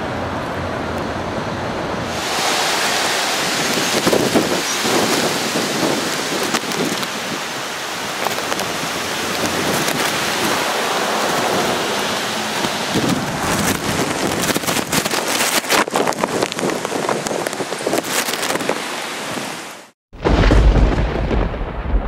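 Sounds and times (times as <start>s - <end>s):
wind rumbling on microphone: 0.0s - 19.7s
steady rain: 0.0s - 22.0s
raindrops striking microphone: 2.0s - 19.0s.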